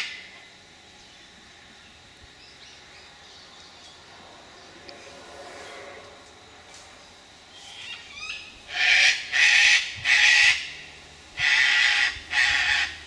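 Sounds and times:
cockatoos screeching: 0:11.4 - 0:13.0.

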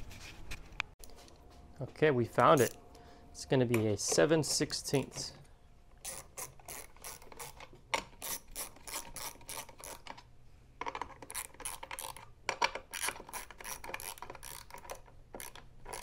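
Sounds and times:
socket ratchet clicking: 0:06.0 - 0:10.2, 0:10.8 - 0:16.0.

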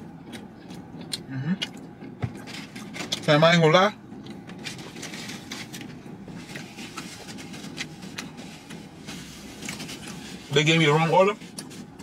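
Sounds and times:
car cabin hum: 0:00.0 - 0:12.0
chewing: 0:00.2 - 0:02.9.

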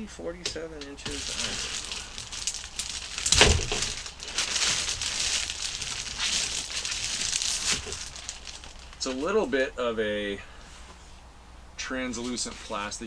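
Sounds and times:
plastic bag crinkling: 0:00.8 - 0:09.5.

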